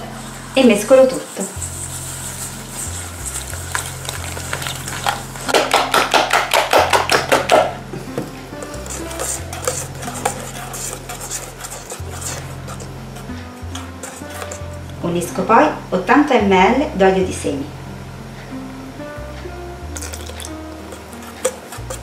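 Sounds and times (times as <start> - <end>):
whisk strokes against a bowl: 0.0 - 7.7, 8.6 - 14.9, 20.0 - 22.0
soft background music: 0.0 - 22.0.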